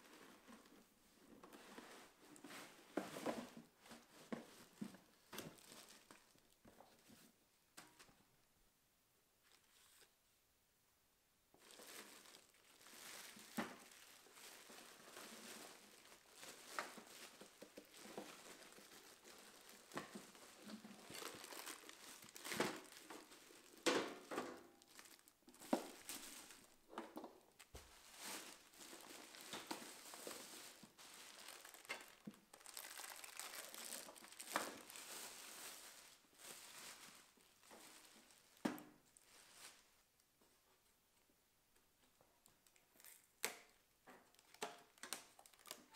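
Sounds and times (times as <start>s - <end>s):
plastic bag crinkling: 5.5s - 6.5s, 11.6s - 26.9s, 27.5s - 38.6s, 44.2s - 45.9s.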